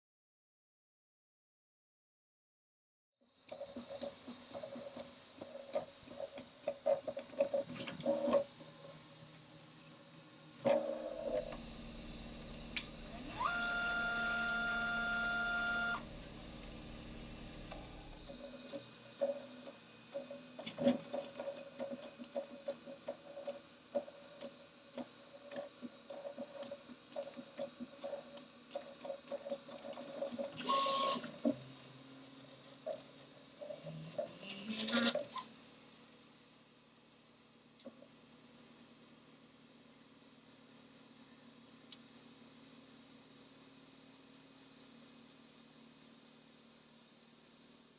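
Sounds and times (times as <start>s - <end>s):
stepper motors buzzing: 11.0s - 18.5s.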